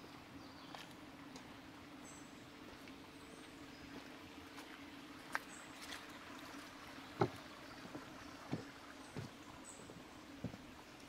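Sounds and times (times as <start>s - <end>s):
footsteps on woodland path: 0.5s - 1.5s, 2.6s - 11.0s.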